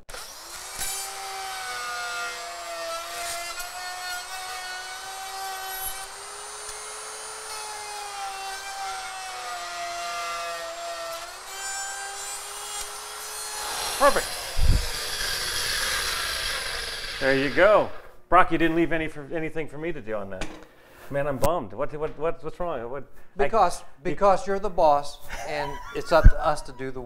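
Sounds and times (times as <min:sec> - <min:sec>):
electric router cutting wood: 0:00.0 - 0:18.1.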